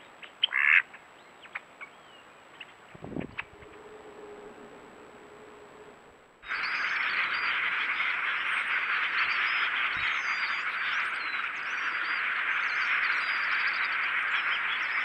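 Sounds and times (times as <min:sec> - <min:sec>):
flock of small birds chattering: 0:06.4 - 0:15.0.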